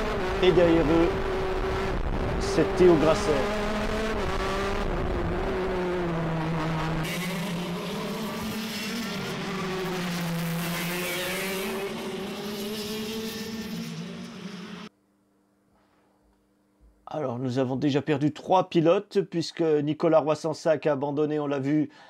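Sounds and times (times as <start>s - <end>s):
kart engines racing: 0.0s - 14.9s.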